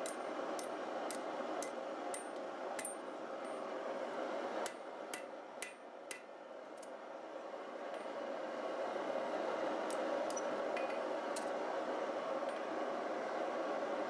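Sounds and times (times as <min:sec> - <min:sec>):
hammer striking metal on anvil: 0:00.0 - 0:03.0, 0:04.7 - 0:06.3.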